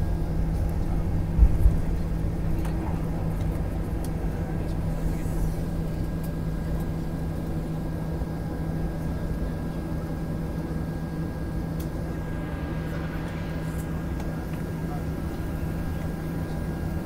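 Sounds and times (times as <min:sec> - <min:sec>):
low rumble: 0:00.0 - 0:08.4, 0:11.8 - 0:16.4
faint high whine: 0:00.0 - 0:17.0
jet engines humming: 0:00.0 - 0:17.0.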